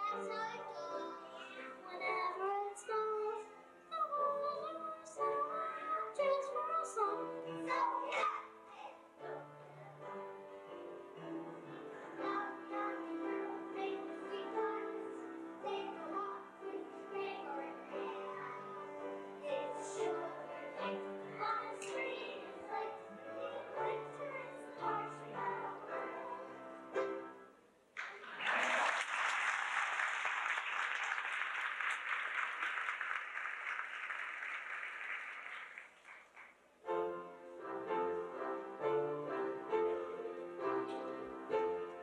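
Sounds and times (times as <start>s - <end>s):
music: 0.0s - 27.7s, 36.8s - 42.0s
audience applauding: 28.0s - 36.6s.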